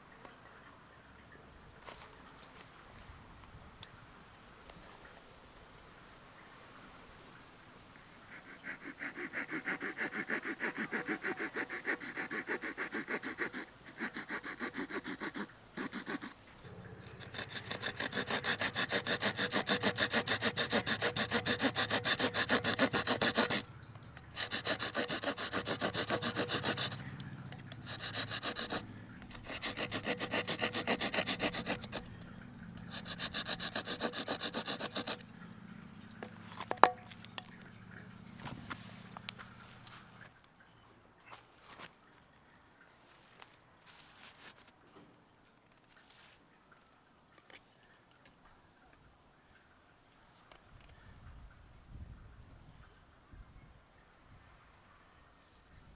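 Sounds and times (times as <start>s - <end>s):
bow drill rasping: 8.3s - 35.4s.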